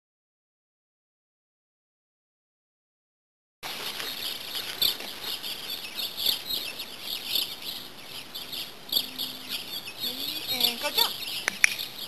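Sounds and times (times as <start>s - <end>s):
small birds chirping: 3.6s - 12.0s.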